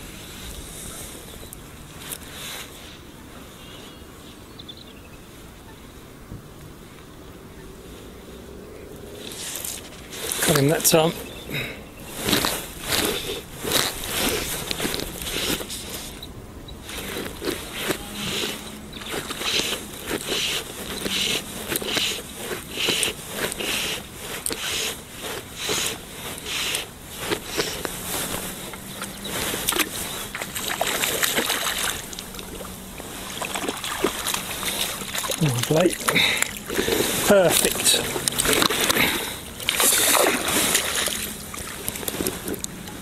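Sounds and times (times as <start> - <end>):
fish splashing at water surface: 29.6 - 42.4.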